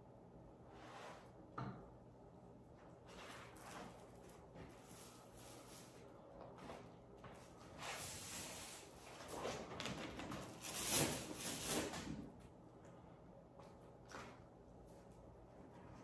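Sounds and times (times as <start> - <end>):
wallpaper rustling against wall: 2.8 - 12.4.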